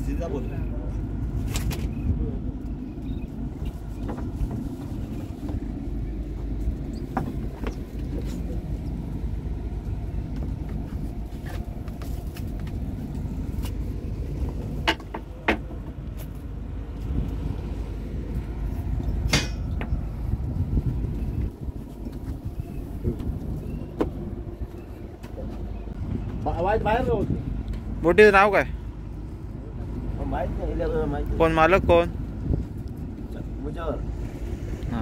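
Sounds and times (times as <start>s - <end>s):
generator rumbling: 0.0s - 35.0s.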